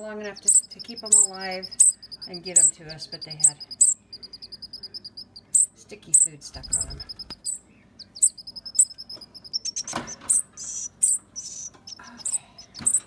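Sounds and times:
young songbirds chirping: 0.0 - 13.0.

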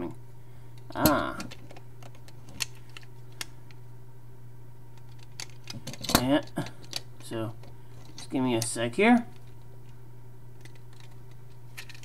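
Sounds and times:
low background hum: 0.0 - 12.0
plastic pieces clicking: 10.6 - 12.0.

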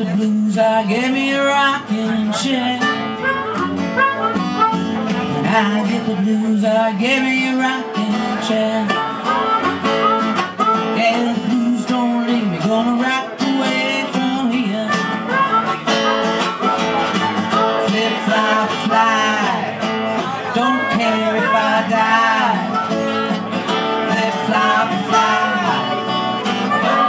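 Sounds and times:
blues band playing: 0.0 - 27.0
strummed acoustic guitar: 0.0 - 27.0
harmonica bending notes: 2.6 - 5.8, 8.7 - 12.2, 13.6 - 27.0.

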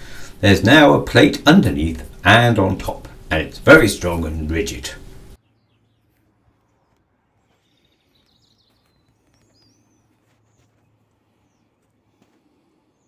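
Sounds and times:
low steady hum: 0.0 - 5.4
faint bird chirps: 5.4 - 11.8.

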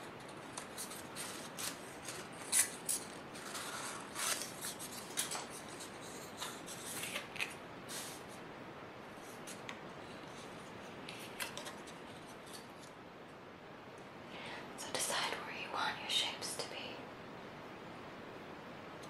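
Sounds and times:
soft paper rustles: 0.1 - 8.4, 9.1 - 13.0
crisp paper crackles: 0.2 - 8.2.

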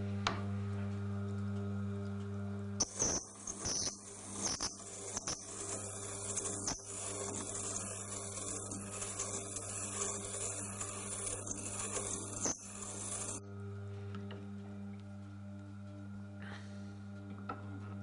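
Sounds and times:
grinder motor hum: 0.0 - 18.0
drill bit grinding on stone: 2.8 - 13.4.

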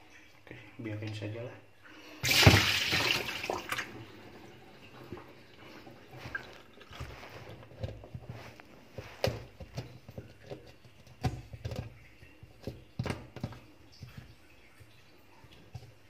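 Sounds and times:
fingers rubbing wet plastic: 5.6 - 14.5
small knocks against plastic: 9.2 - 14.4.

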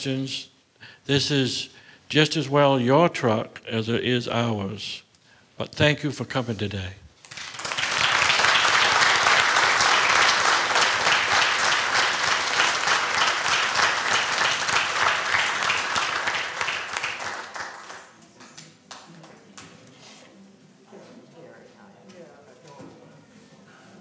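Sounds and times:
audience applauding: 7.3 - 18.2.

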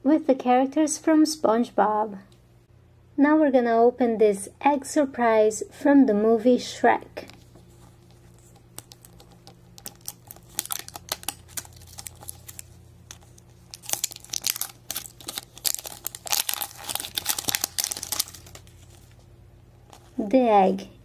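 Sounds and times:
plastic wrapper crinkling and tearing: 7.2 - 19.2.

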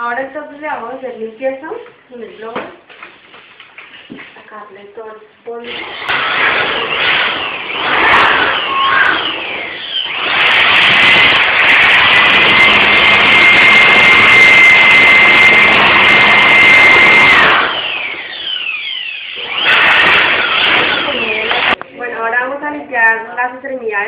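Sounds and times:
electric blower running: 5.6 - 21.8.

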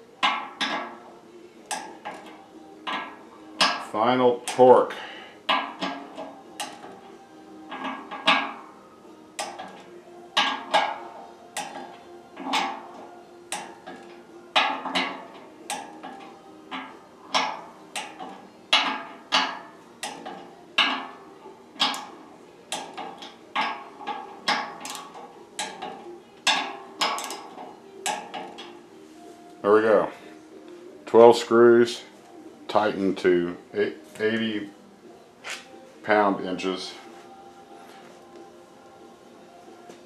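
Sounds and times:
torque wrench clicking: 5.5 - 7.0, 9.4 - 9.8.

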